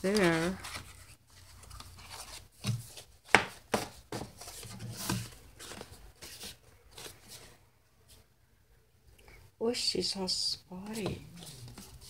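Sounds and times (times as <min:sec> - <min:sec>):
paper pages rustling: 0:00.0 - 0:07.6, 0:10.8 - 0:12.0.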